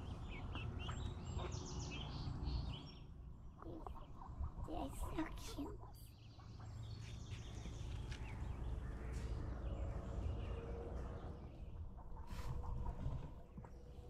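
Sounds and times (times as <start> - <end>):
wind rumble on microphone: 6.7 - 14.0.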